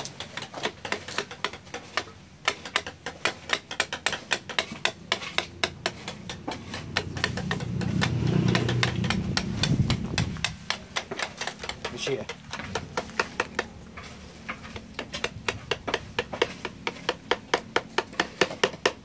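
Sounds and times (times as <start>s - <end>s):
mallet tapping chisel into wood: 0.6s - 13.7s, 14.5s - 19.0s
low engine hum: 5.6s - 17.8s.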